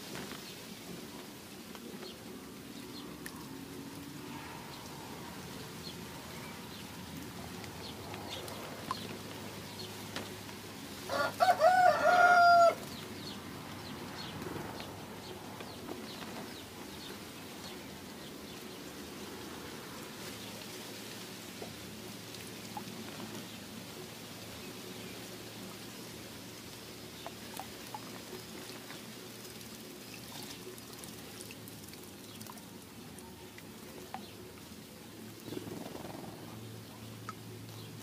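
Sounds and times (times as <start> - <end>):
small birds chirping: 0.0 - 11.0, 11.7 - 19.5, 20.2 - 38.0
rooster crowing: 11.1 - 12.8.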